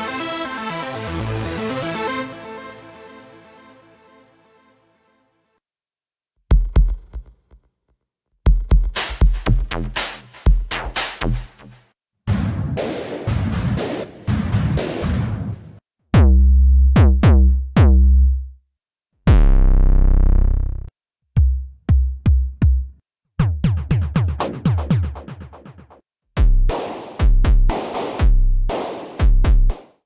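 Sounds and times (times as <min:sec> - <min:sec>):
drum machine beat: 0:06.5 - 0:07.6, 0:08.4 - 0:15.6, 0:16.2 - 0:18.5, 0:21.4 - 0:30.0
synthesized bass drum hits: 0:16.2 - 0:18.5, 0:19.3 - 0:25.3.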